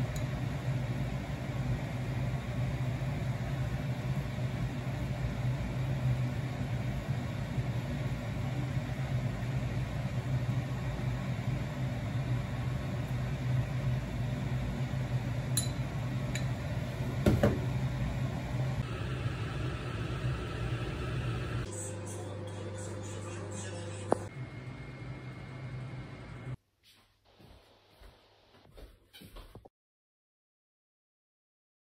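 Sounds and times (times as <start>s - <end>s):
low mechanical hum: 0.0s - 26.6s.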